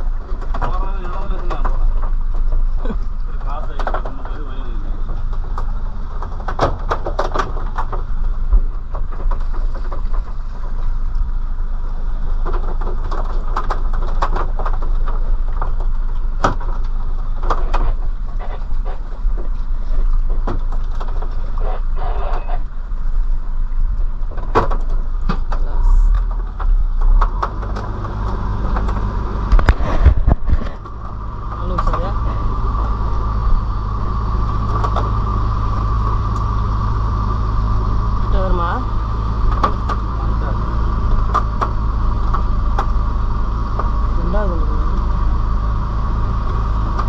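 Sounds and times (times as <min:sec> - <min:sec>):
knocks and clatter of fish hauled: 0:00.0 - 0:11.6, 0:12.2 - 0:23.3, 0:24.0 - 0:33.4
boat engine humming: 0:00.0 - 0:47.0.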